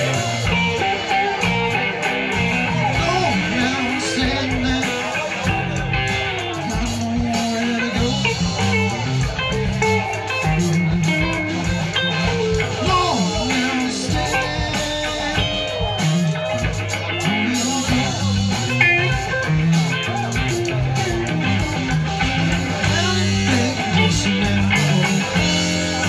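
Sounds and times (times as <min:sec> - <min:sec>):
electric bass line: 0:00.0 - 0:26.0
electric guitars: 0:00.0 - 0:26.0
lead guitar bending notes: 0:00.0 - 0:26.0.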